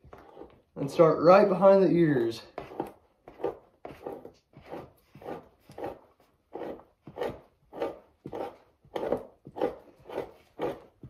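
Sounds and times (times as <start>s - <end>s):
knife scraping hide: 0.0s - 1.0s, 2.2s - 11.0s.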